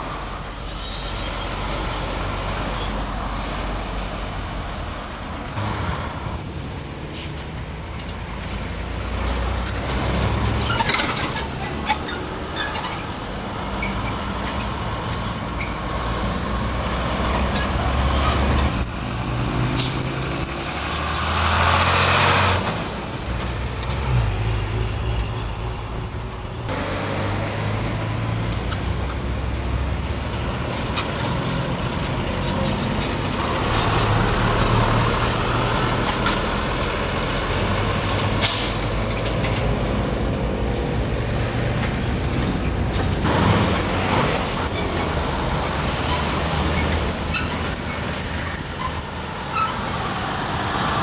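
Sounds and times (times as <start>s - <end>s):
diesel lorries passing: 0.0s - 51.0s
air brakes hissing: 38.4s - 39.0s.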